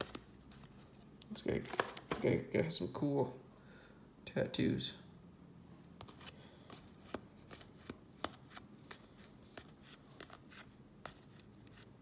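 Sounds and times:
trading cards flipped through: 0.0s - 0.9s, 1.6s - 2.3s, 6.0s - 11.9s.

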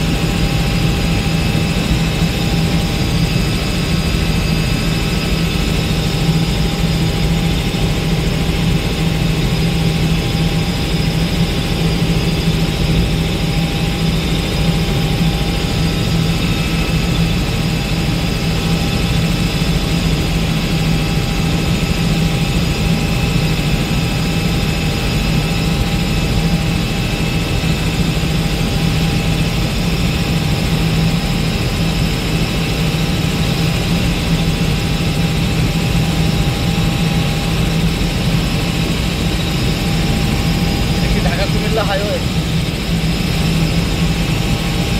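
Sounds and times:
helicopter cabin drone: 0.0s - 44.9s.

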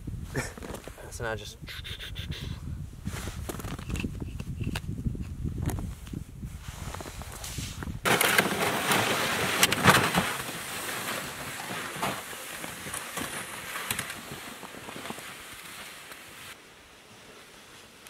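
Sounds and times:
plastic sled scraping on snow: 6.6s - 18.0s
boots crunching through snow: 8.6s - 16.6s.

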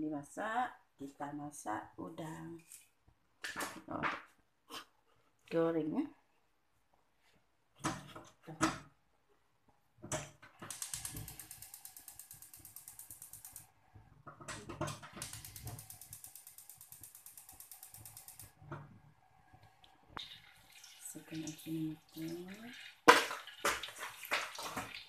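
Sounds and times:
stove spark igniter clicking: 10.1s - 13.7s, 14.8s - 18.6s.

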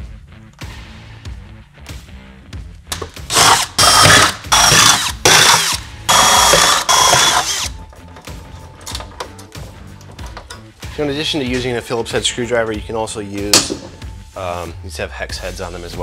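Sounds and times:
cordless drill whining through metal: 3.3s - 7.8s.

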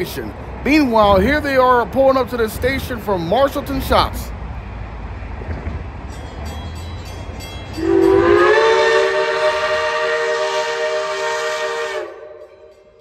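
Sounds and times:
steam locomotive chime whistle: 6.7s - 13.0s.

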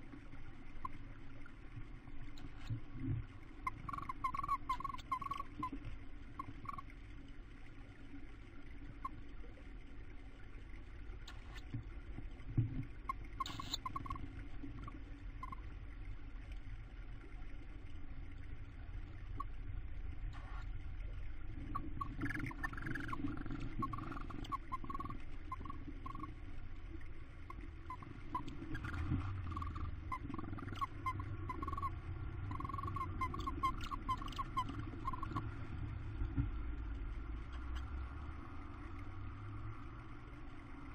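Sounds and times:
low steady hum: 0.0s - 40.9s
owls chirping: 3.7s - 5.7s, 13.4s - 14.2s, 21.7s - 26.3s, 27.5s - 31.9s, 32.5s - 35.4s.

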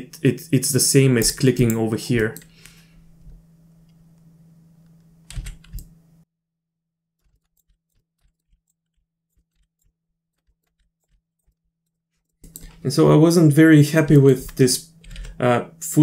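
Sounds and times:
faint electrical hum: 0.0s - 6.3s, 12.4s - 16.0s
keyboard keystrokes: 5.3s - 5.9s.

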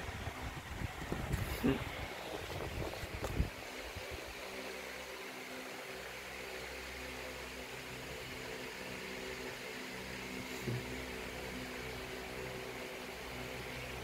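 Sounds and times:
background hum and hiss: 0.0s - 14.0s.

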